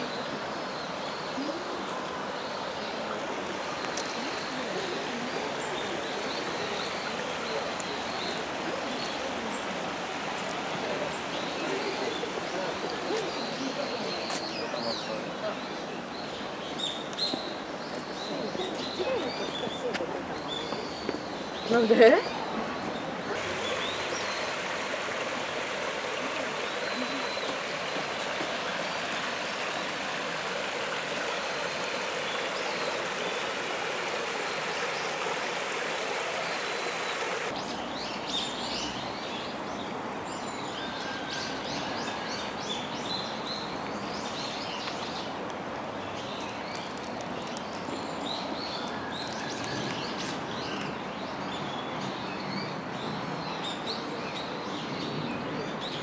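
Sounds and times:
stream babbling: 0:00.0 - 0:54.7
small birds chirping: 0:16.1 - 0:39.6.

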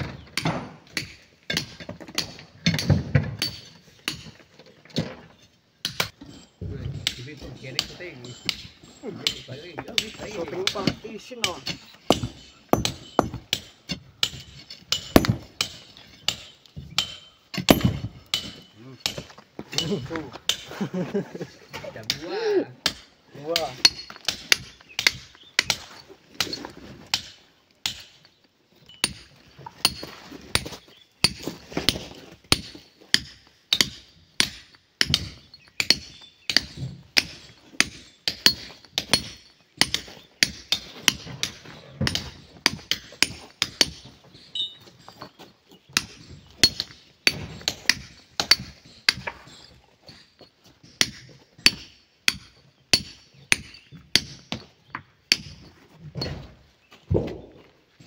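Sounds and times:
hammer striking steel chisel: 0:07.8 - 0:19.2, 0:46.0 - 0:55.6.

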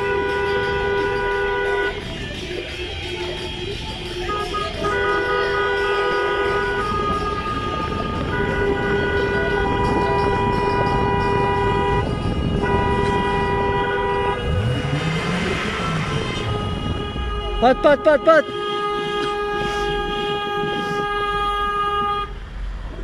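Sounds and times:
car horns blasting: 0:00.0 - 0:22.5
road noise: 0:00.0 - 0:23.0.

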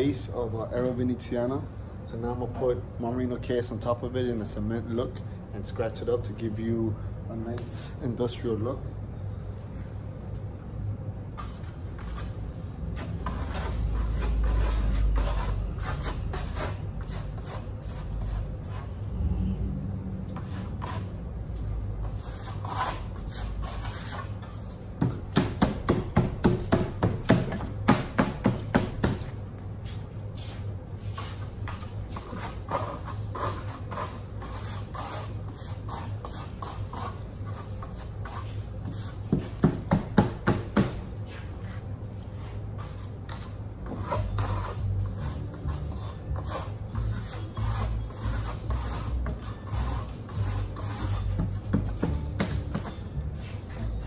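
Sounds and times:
steel trowel scraping plaster: 0:12.9 - 0:18.9, 0:22.0 - 0:24.7, 0:32.1 - 0:39.0, 0:42.9 - 0:51.4.

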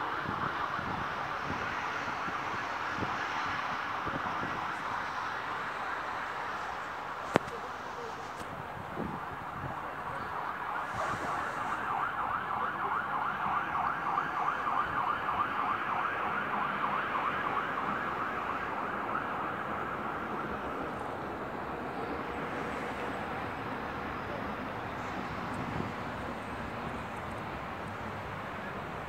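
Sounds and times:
city traffic hum: 0:00.0 - 0:29.0
siren yelping: 0:09.9 - 0:20.9.

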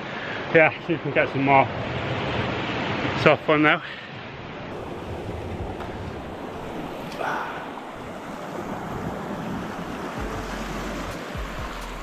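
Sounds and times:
sea swell washing over rocks: 0:04.7 - 0:11.6
wind on microphone: 0:04.7 - 0:12.0.

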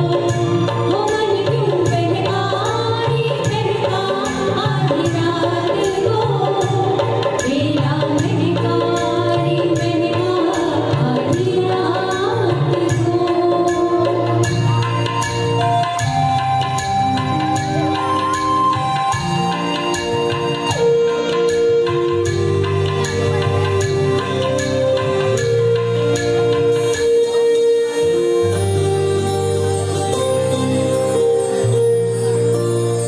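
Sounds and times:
women singing a duet: 0:00.0 - 0:14.5.

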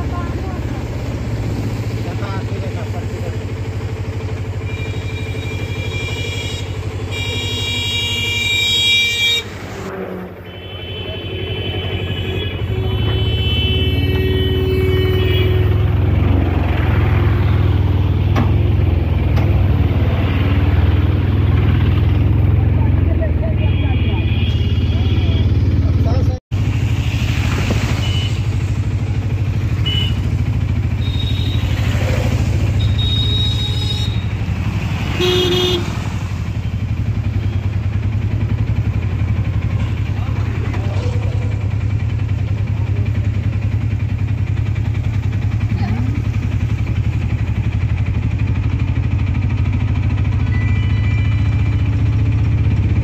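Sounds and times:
passing road traffic: 0:00.0 - 0:53.0
small engine rumbling: 0:00.0 - 0:53.0
vehicle horn beep: 0:04.6 - 0:09.5, 0:10.5 - 0:15.9, 0:23.5 - 0:25.8, 0:27.9 - 0:28.5, 0:29.7 - 0:31.9, 0:32.6 - 0:34.4, 0:35.1 - 0:35.9, 0:50.1 - 0:52.4
high steady tone: 0:50.2 - 0:51.9.

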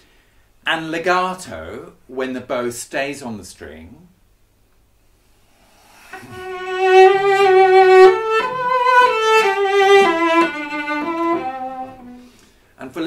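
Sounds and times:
bowed cello melody: 0:06.1 - 0:12.4.

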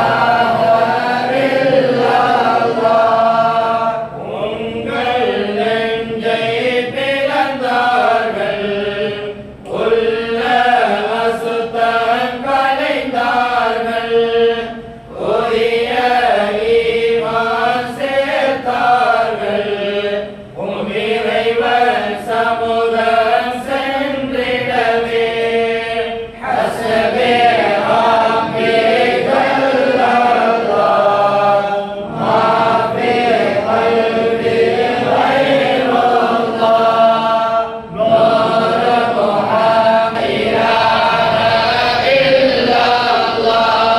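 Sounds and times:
men chanting in unison: 0:00.0 - 0:43.9.

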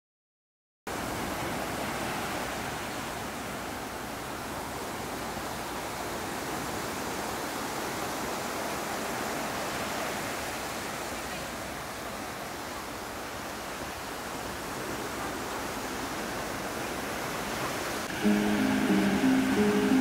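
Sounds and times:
small waves washing on beach: 0:00.9 - 0:20.0.

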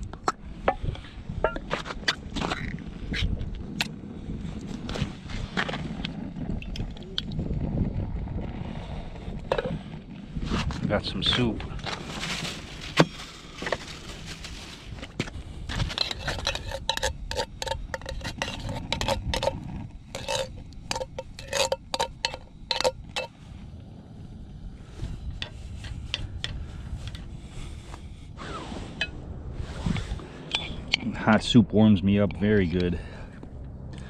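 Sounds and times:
metal spoon scraping in tin can: 0:15.7 - 0:23.3.

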